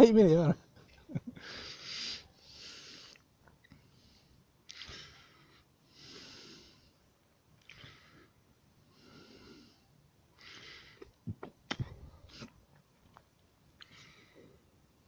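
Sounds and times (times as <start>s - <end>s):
person breathing slowly: 1.3s - 11.2s, 13.8s - 14.8s.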